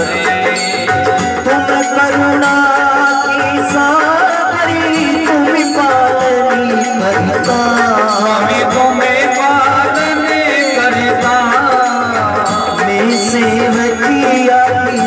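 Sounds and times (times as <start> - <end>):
devotional singing: 0.0 - 15.0
rhythmic percussion strokes: 0.0 - 15.0
steady held tone: 0.0 - 15.0.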